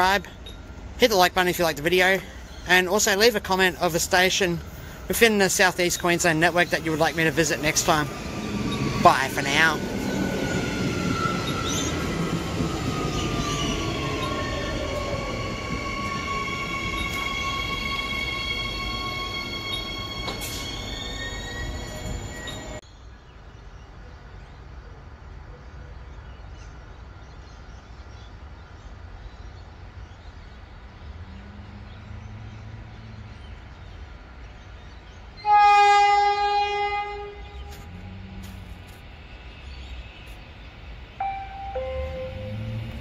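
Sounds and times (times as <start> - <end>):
low rail noise: 0.0 - 23.3, 23.9 - 43.0
train horn blast: 35.4 - 38.8, 41.2 - 43.0
falling two-note tone: 41.2 - 43.0.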